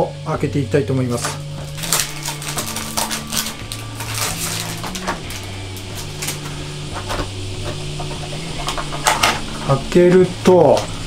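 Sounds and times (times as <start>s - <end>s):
plastic shrink wrap crinkling: 1.2s - 9.8s.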